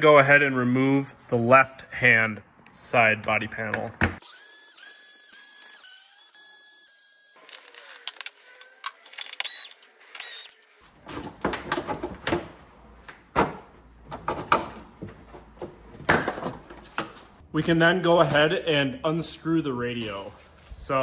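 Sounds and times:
cordless screwdriver whining: 4.2s - 10.7s
plastic panels knocking and clattering: 11.1s - 12.5s, 13.3s - 17.2s.

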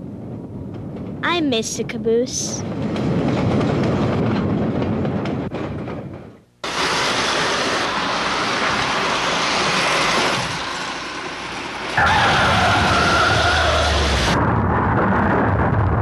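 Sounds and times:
freight train rumbling past: 0.0s - 14.4s
train wheels clicking over rail joints: 2.6s - 14.2s
steady hiss: 6.6s - 12.0s.

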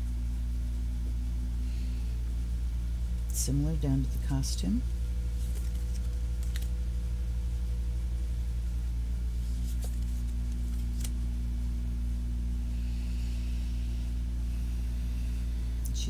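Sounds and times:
steady low hum: 0.0s - 16.0s
soft clicks of cards handled: 5.4s - 6.8s, 9.5s - 11.2s.

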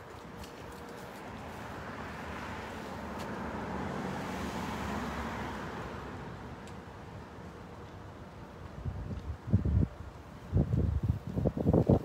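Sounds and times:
motor vehicle passing by: 1.5s - 6.2s.

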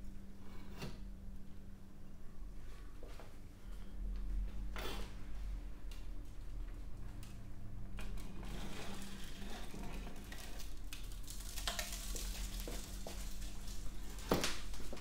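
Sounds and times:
furnace low hum: 0.0s - 15.0s
material crackling and sizzling: 8.4s - 15.0s.

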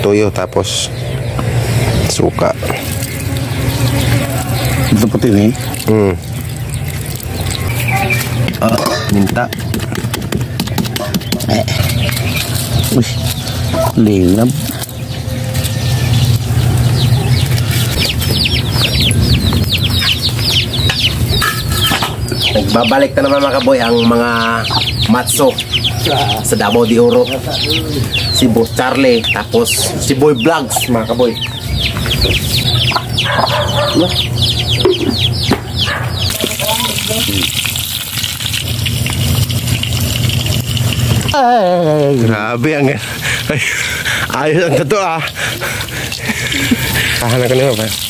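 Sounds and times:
chicks peeping: 0.0s - 41.4s, 42.1s - 48.0s
garlic sizzling in hot oil: 2.4s - 9.2s, 11.4s - 14.9s, 36.3s - 43.6s, 45.8s - 48.0s
steady low rumble: 11.6s - 36.4s.

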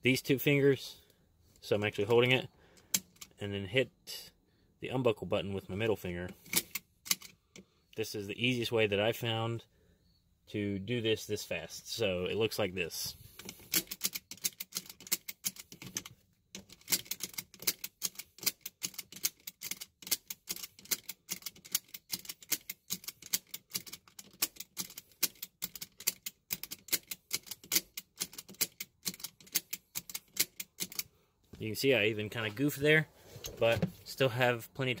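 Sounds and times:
seat belt buckle clicking: 13.4s - 31.1s.

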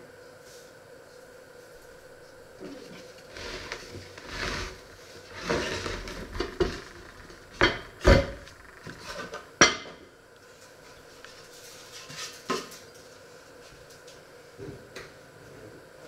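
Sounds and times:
pot and boards scraping on wood: 2.6s - 9.3s.

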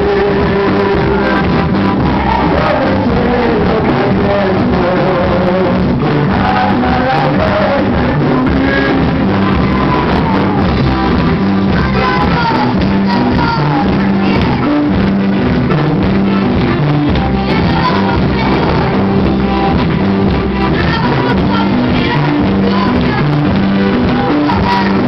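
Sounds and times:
live band playing: 0.0s - 25.0s
voices singing: 0.0s - 25.0s.

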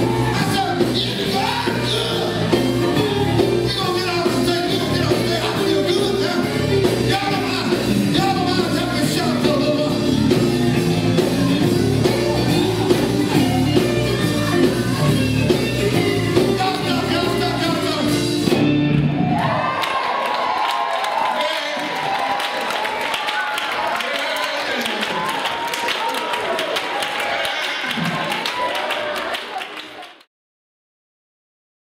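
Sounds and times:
men singing: 0.0s - 18.2s
amplified rock band playing: 0.0s - 19.7s.

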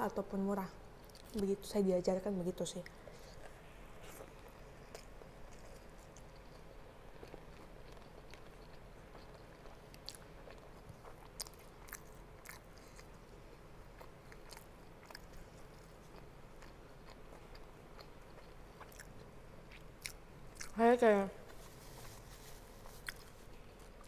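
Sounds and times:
close-up chewing: 2.8s - 20.8s, 21.5s - 24.0s.

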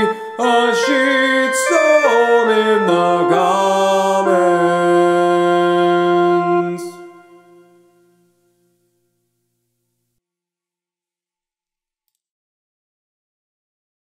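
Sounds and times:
man singing: 0.0s - 7.7s
music: 0.0s - 9.6s.

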